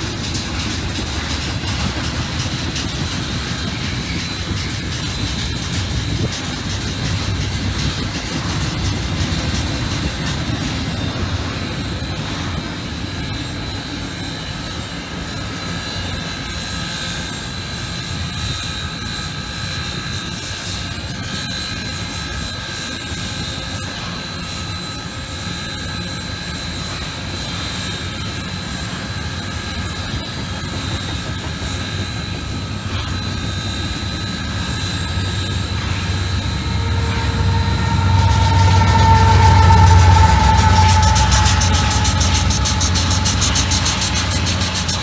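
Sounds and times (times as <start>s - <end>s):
diesel locomotive: 0.0s - 45.0s
steel wheels rumbling on rail: 0.0s - 45.0s
high whine: 26.6s - 45.0s.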